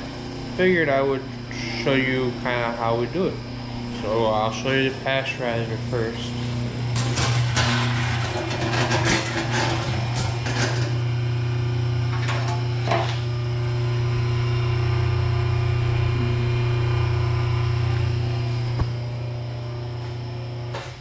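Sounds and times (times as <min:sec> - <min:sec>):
pasteurizer low hum: 0:00.0 - 0:21.0.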